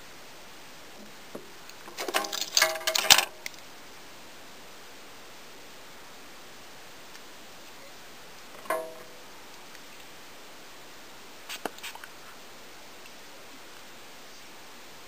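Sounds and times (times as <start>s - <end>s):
steady low hiss: 0.0s - 15.0s
small hard objects clattering: 1.7s - 3.6s.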